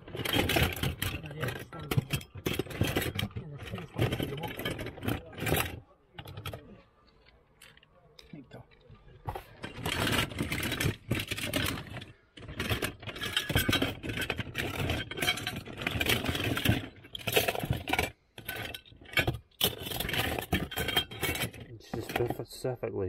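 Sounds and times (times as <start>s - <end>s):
toy cars clattering in cardboard box: 0.0s - 7.9s, 8.8s - 22.4s.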